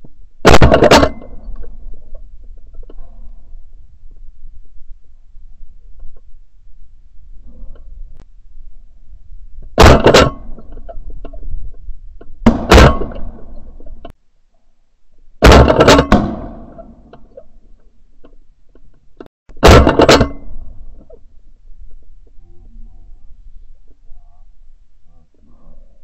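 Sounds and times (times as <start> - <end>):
shotgun shots: 0.4 - 1.2, 12.4 - 13.3, 15.4 - 16.7.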